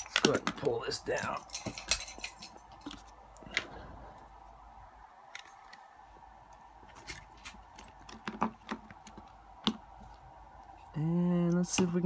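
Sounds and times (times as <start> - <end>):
faint steady hum: 0.0 - 12.0
small clicks and taps: 6.5 - 10.7.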